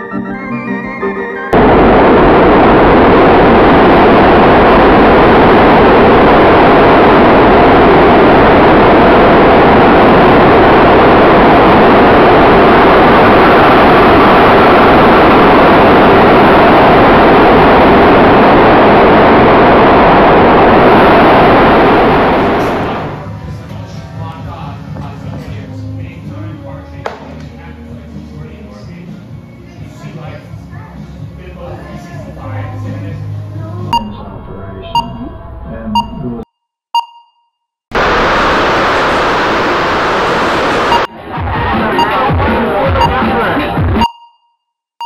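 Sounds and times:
loud roaring wash of noise: 1.5s - 26.2s, 37.9s - 43.8s.

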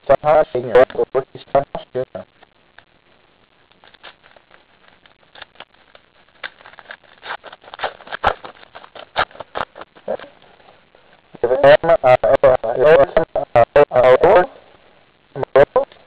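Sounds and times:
card pack crackling and crinkling: 3.6s - 11.2s.

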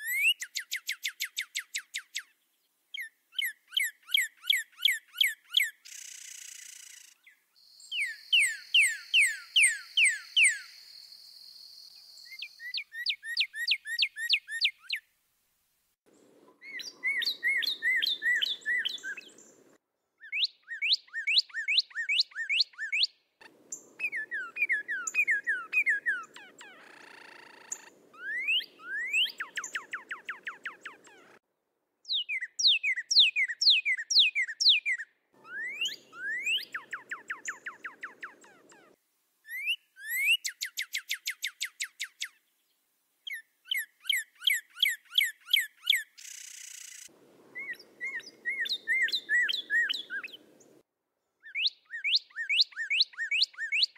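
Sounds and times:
cardinals singing whistled notes: 0.0s - 15.1s, 16.5s - 31.4s, 32.1s - 42.6s, 43.2s - 50.8s, 51.4s - 53.9s.

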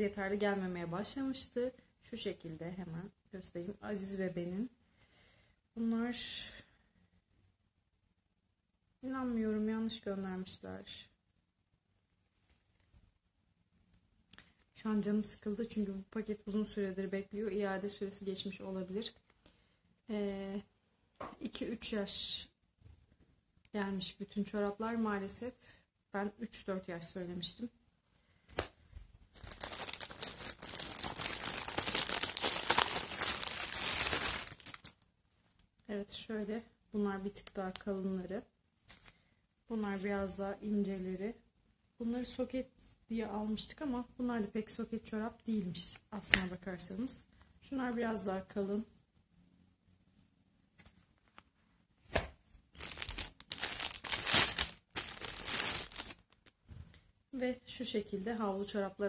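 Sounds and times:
plastic packaging crinkling: 29.3s - 35.0s, 52.8s - 56.6s.

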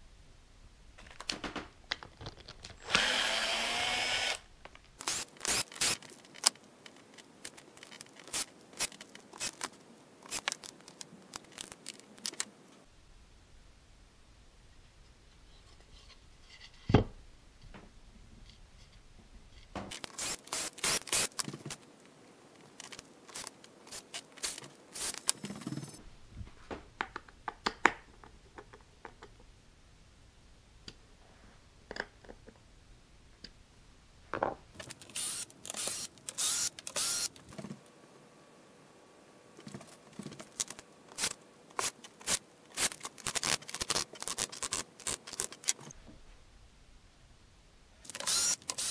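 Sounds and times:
screwdriver turning screws squeaking: 5.0s - 6.5s, 7.5s - 10.6s, 19.9s - 21.5s, 22.8s - 26.0s, 34.8s - 37.4s, 40.4s - 45.9s, 48.1s - 48.9s.

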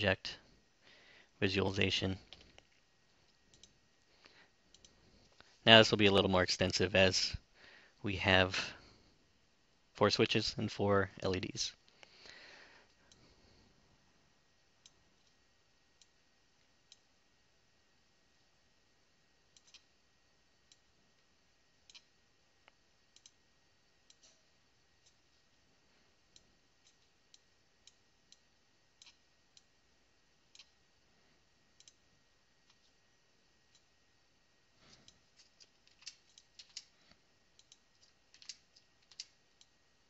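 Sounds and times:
computer mouse clicking: 3.4s - 3.8s, 4.7s - 5.0s, 19.5s - 19.9s, 21.8s - 22.1s, 23.1s - 23.4s, 29.0s - 29.7s, 30.5s - 30.8s, 31.8s - 32.0s, 37.5s - 39.8s.

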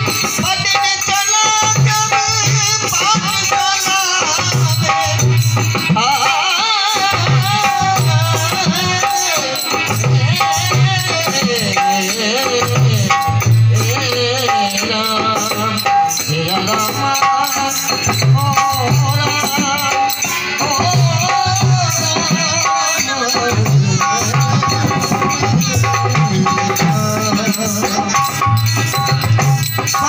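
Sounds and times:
dholak drumming: 0.0s - 30.0s
harmonium melody: 0.0s - 30.0s
jingling rattle: 7.2s - 30.0s.

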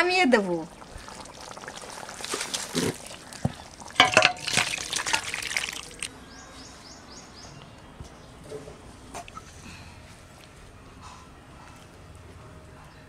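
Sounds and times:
thick curry sloshing when stirred: 0.7s - 6.1s.

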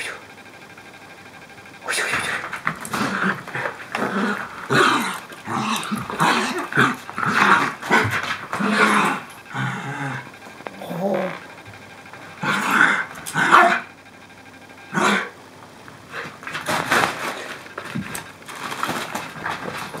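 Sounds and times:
small dogs growling: 1.8s - 14.0s, 14.8s - 15.4s.

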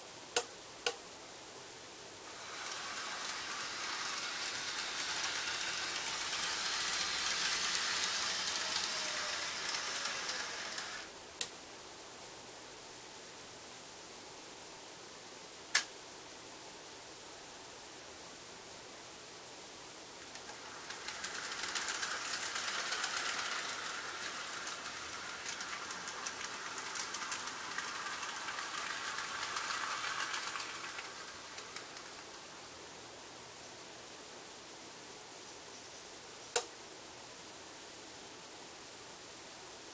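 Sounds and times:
faint motor whine: 0.0s - 11.4s, 18.2s - 34.9s
model train wheels rattling: 2.2s - 11.2s, 20.2s - 32.9s
sharp click: 15.7s - 15.9s.

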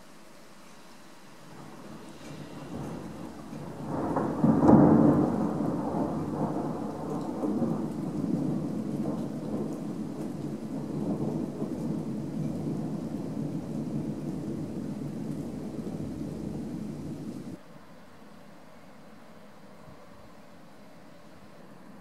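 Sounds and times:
thunder rumbling: 1.6s - 17.6s.

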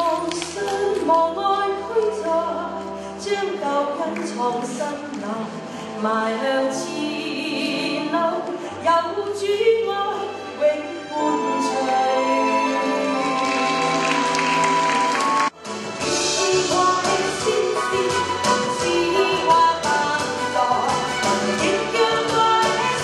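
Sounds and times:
woman singing into a microphone: 0.0s - 13.8s, 16.2s - 23.0s
musical accompaniment with low bass: 11.3s - 23.0s.

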